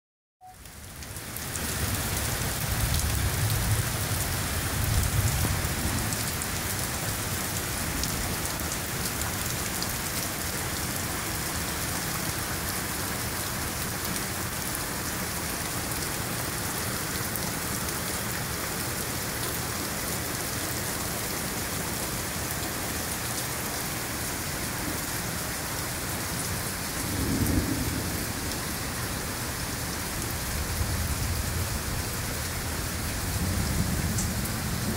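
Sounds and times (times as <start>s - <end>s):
heavy rain on pavement: 0.4s - 34.9s
thunder rumbling: 27.0s - 28.6s.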